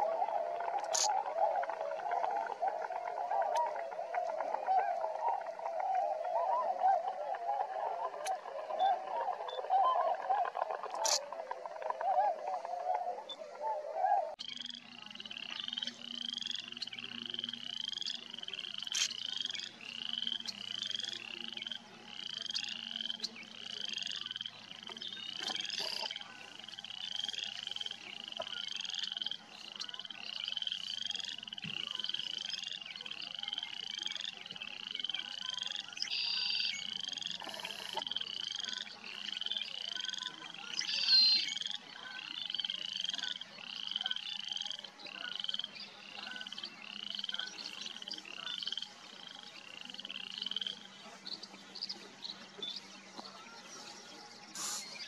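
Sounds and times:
frogs calling: 0:00.7 - 0:01.8, 0:08.2 - 0:12.2, 0:14.3 - 0:52.0.

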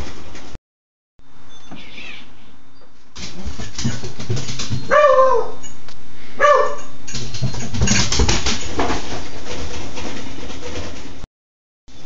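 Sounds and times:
puppy barking: 0:04.9 - 0:05.7, 0:06.4 - 0:06.9.

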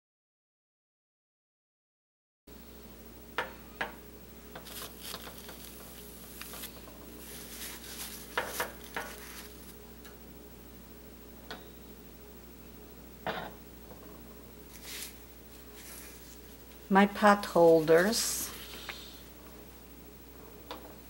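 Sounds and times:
paper napkins rustling: 0:04.6 - 0:09.8, 0:14.7 - 0:19.3.

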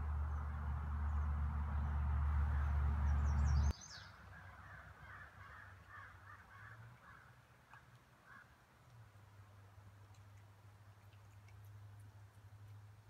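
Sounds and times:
low rumble: 0:00.0 - 0:03.7
crow cawing: 0:04.3 - 0:07.3, 0:08.3 - 0:08.5.

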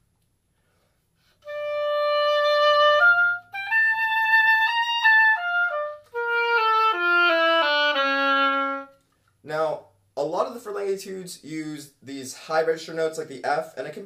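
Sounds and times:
solo oboe playing: 0:01.3 - 0:09.0.

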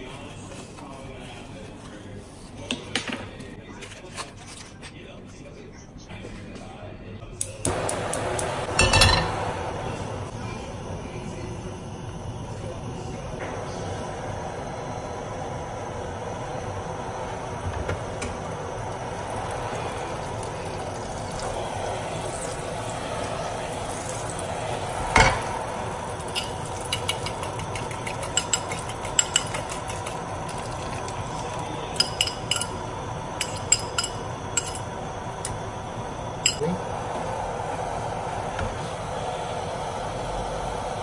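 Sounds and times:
oil and butter sizzling in a pan: 0:13.6 - 0:40.6
utensil clinking against ceramic bowl: 0:26.2 - 0:32.8, 0:33.4 - 0:34.9.

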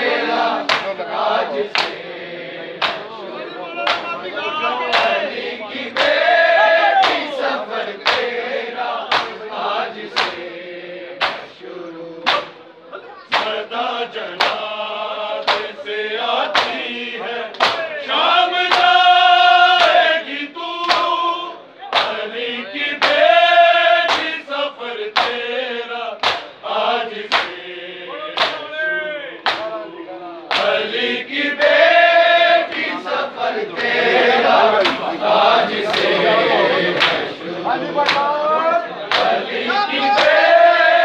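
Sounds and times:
men chanting in chorus: 0:00.0 - 0:41.0
hand slaps on chests: 0:00.6 - 0:01.0, 0:01.7 - 0:02.0, 0:02.8 - 0:03.2, 0:03.8 - 0:04.2, 0:04.9 - 0:05.2, 0:05.9 - 0:06.3, 0:07.0 - 0:07.4, 0:08.0 - 0:08.4, 0:09.1 - 0:09.4, 0:10.1 - 0:10.4, 0:11.2 - 0:11.6, 0:12.2 - 0:12.6, 0:13.3 - 0:13.6, 0:14.3 - 0:14.7, 0:15.4 - 0:15.8, 0:16.5 - 0:16.9, 0:17.5 - 0:17.9, 0:18.6 - 0:19.0, 0:19.8 - 0:20.0, 0:20.8 - 0:21.2, 0:21.9 - 0:22.3, 0:23.0 - 0:23.3, 0:24.0 - 0:24.4, 0:25.1 - 0:25.4, 0:26.2 - 0:26.6, 0:27.2 - 0:27.6, 0:28.4 - 0:28.7, 0:29.4 - 0:29.8, 0:30.5 - 0:30.8, 0:32.7 - 0:33.0, 0:33.8 - 0:34.0, 0:34.8 - 0:35.1, 0:35.8 - 0:36.2, 0:37.0 - 0:37.4, 0:38.0 - 0:38.3, 0:39.1 - 0:39.5, 0:40.1 - 0:40.7.

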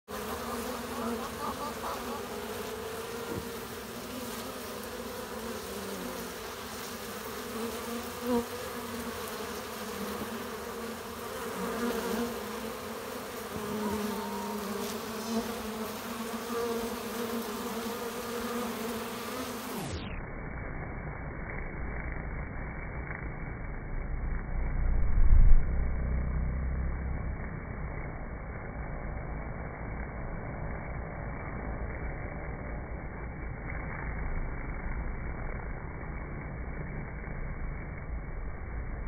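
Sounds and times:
bees buzzing: 0:00.1 - 0:20.1.

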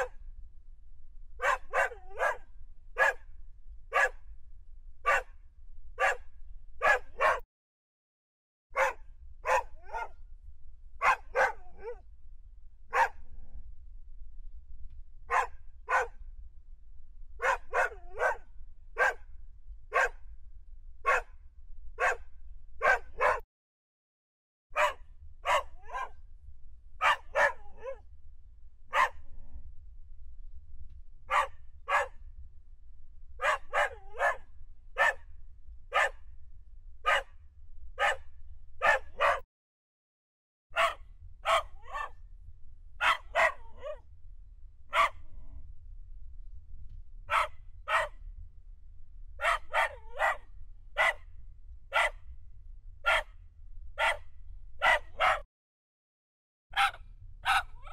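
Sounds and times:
dogs barking: 0:01.4 - 0:02.4, 0:03.0 - 0:03.2, 0:03.9 - 0:04.2, 0:05.0 - 0:05.3, 0:06.0 - 0:06.2, 0:06.8 - 0:07.4, 0:08.8 - 0:10.2, 0:11.0 - 0:12.0, 0:12.9 - 0:13.2, 0:15.3 - 0:16.1, 0:17.4 - 0:18.4, 0:19.0 - 0:19.2, 0:19.9 - 0:20.2, 0:21.0 - 0:21.3, 0:22.0 - 0:22.2, 0:22.8 - 0:23.4, 0:24.8 - 0:26.2, 0:27.0 - 0:28.0, 0:28.9 - 0:29.2, 0:31.3 - 0:32.1, 0:33.4 - 0:34.4, 0:35.0 - 0:35.2, 0:35.9 - 0:36.2, 0:37.1 - 0:37.3, 0:38.0 - 0:38.2, 0:38.8 - 0:39.4, 0:40.8 - 0:42.1, 0:43.0 - 0:44.0, 0:44.9 - 0:45.2, 0:47.3 - 0:48.1, 0:49.4 - 0:50.4, 0:51.0 - 0:51.2, 0:51.9 - 0:52.2, 0:53.0 - 0:53.3, 0:54.0 - 0:54.2, 0:54.8 - 0:55.5, 0:56.8 - 0:57.9.

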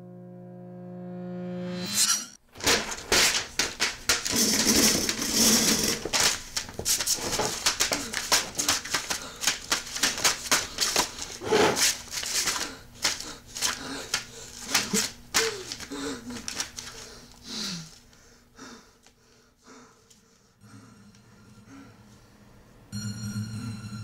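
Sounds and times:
paper crumpling: 0:02.5 - 0:18.2.

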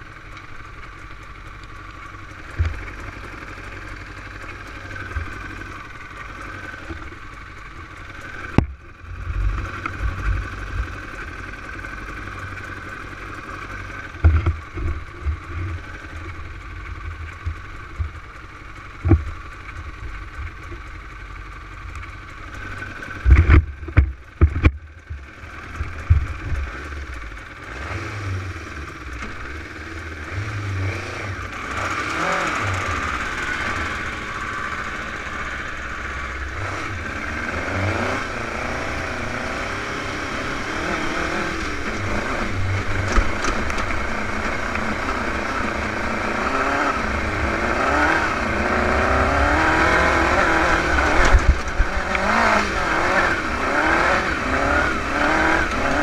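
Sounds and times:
dune buggy engine revving: 0:00.0 - 0:56.0
steady rushing noise: 0:28.9 - 0:56.0.

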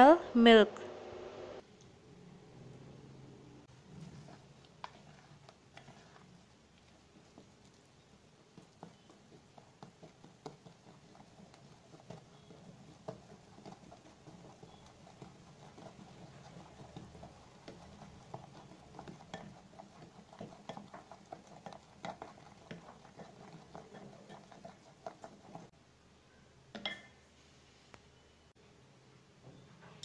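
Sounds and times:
spatula stirring batter in glass bowl: 0:03.7 - 0:25.7.

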